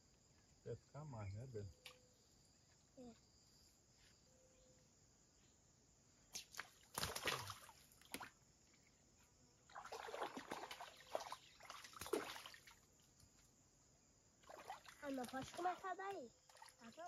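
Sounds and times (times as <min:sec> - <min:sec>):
shallow river water splashing: 0:06.4 - 0:08.4, 0:09.7 - 0:13.4, 0:14.4 - 0:17.0.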